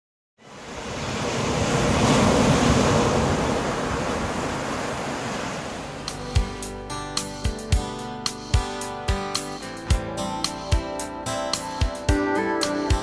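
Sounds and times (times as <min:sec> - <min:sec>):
ocean surf rush: 0:00.4 - 0:06.8.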